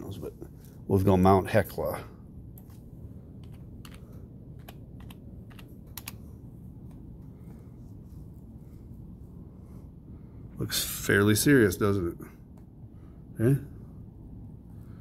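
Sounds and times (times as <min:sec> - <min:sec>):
low steady hum: 0:00.0 - 0:15.0
computer keyboard typing: 0:03.4 - 0:06.2.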